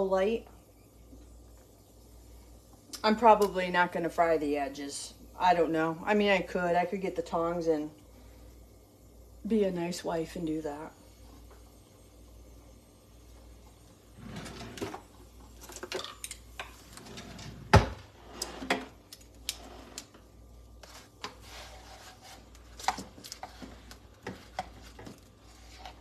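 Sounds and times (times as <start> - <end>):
utensils scraping a frying pan: 20.9 - 22.5.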